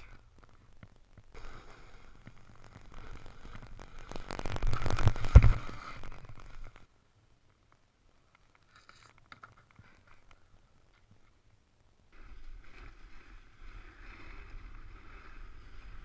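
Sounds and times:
snow clicks under rider: 0:00.0 - 0:06.9, 0:12.2 - 0:16.0
skis sliding on packed snow: 0:01.3 - 0:06.8, 0:12.2 - 0:16.0.

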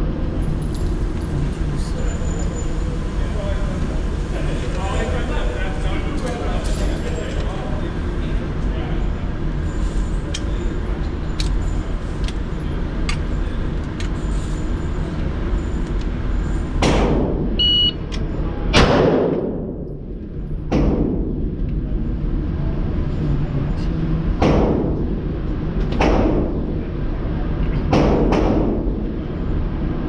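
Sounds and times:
steady background hum: 0:00.0 - 0:30.0
shot timer beep: 0:17.6 - 0:18.0.

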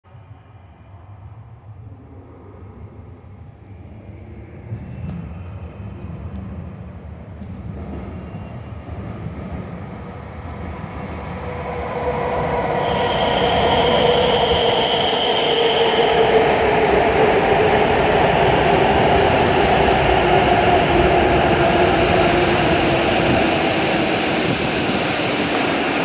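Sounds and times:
train rumble: 0:00.2 - 0:26.0
train running noise: 0:03.6 - 0:26.0
high steady brake squeal: 0:12.4 - 0:16.9.

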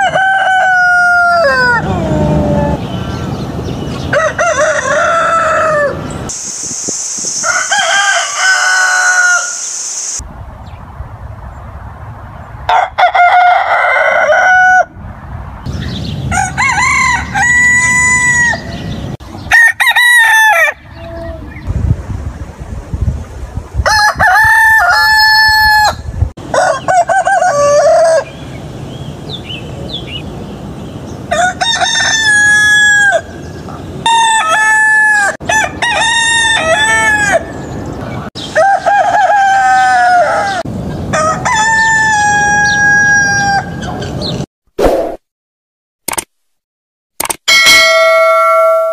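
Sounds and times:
chickens calling: 0:00.0 - 0:06.5, 0:07.2 - 0:10.2, 0:24.0 - 0:30.4, 0:31.0 - 0:44.4.

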